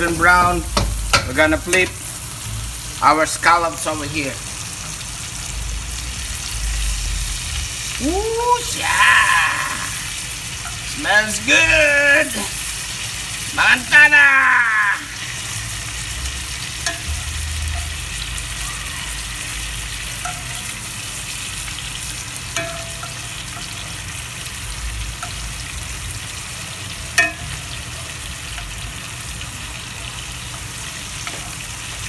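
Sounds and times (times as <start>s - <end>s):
scallops sizzling in butter: 0.0s - 32.0s
metal tongs clicking on pan: 16.8s - 17.9s, 20.2s - 20.7s, 27.2s - 27.6s.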